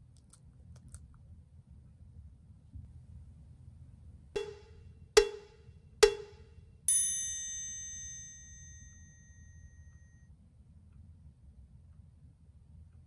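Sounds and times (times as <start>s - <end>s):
sharp percussive plinks: 6.9s - 9.2s
bell-like chime ringing: 6.9s - 10.2s.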